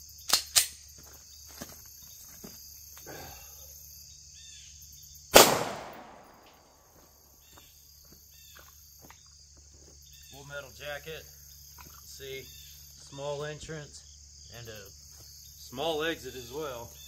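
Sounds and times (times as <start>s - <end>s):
crickets chirping: 0.0s - 17.0s
pistol handling clicks: 0.3s - 0.8s, 5.4s - 6.6s
pistol shot with echo: 5.3s - 6.8s.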